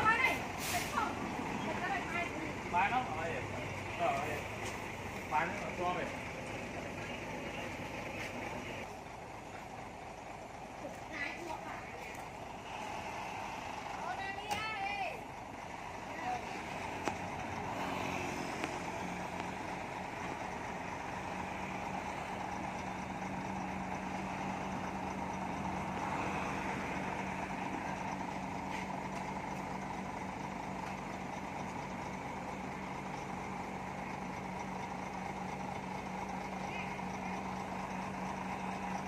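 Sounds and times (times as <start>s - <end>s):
diesel truck engine running: 0.0s - 39.0s.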